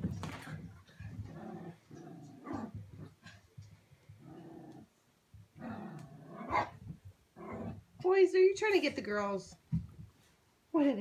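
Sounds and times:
small dogs growling: 1.0 - 3.4, 4.1 - 5.0, 5.6 - 6.8, 7.4 - 7.9.

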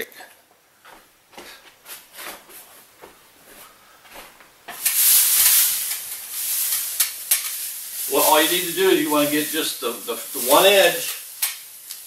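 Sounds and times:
plastic sheeting rustling: 4.1 - 12.0.

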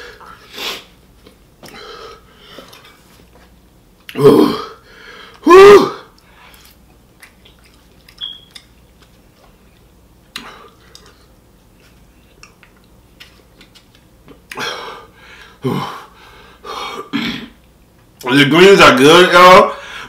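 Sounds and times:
faint chewing: 6.2 - 14.6.

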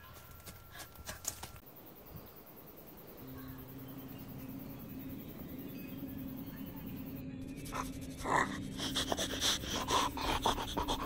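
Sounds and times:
person making panting noises: 7.7 - 11.0.

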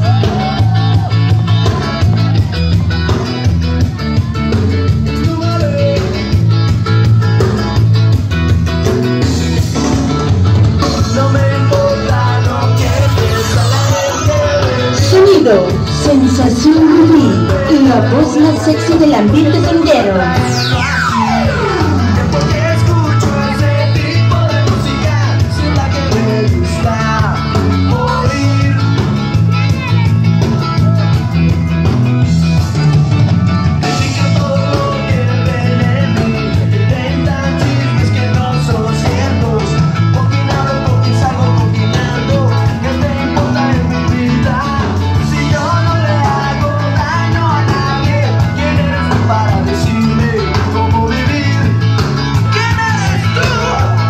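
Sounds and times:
rock and roll music with singing: 0.0 - 54.0.

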